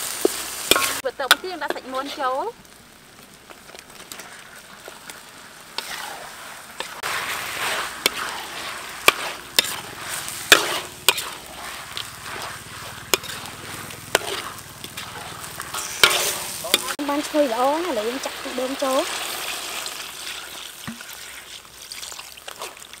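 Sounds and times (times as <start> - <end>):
metal ladle scraping a wok: 0.0 - 2.4, 4.0 - 22.9
chicken sizzling in a wok: 0.0 - 23.0.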